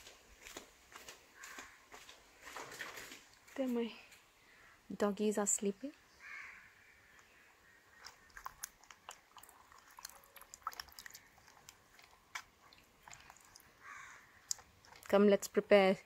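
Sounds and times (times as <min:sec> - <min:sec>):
small splashes and knocks in water: 0:08.0 - 0:13.8.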